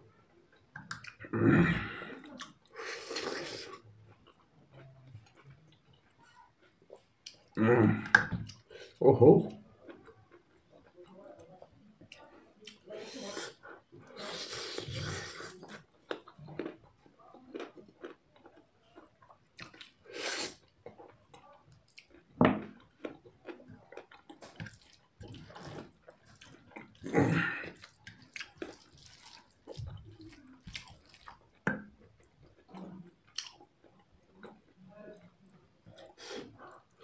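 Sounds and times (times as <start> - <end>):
person chewing food: 0.0 - 37.0.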